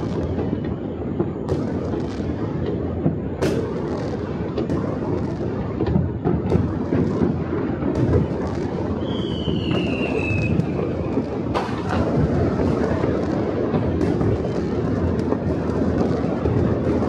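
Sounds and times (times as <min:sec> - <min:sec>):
distant fireworks rumble and crackle: 0:00.0 - 0:17.0
firework bangs: 0:00.0 - 0:17.0
falling firework whistle: 0:08.2 - 0:12.3.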